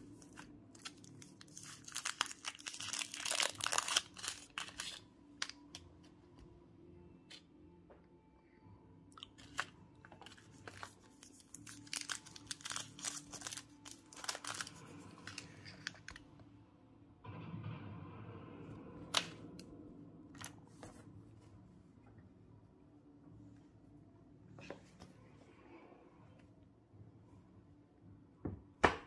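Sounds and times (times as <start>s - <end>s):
wrapper rustling: 0.0s - 5.8s, 9.2s - 16.2s
wrappers crinkling and tearing: 0.0s - 5.8s, 9.2s - 16.2s.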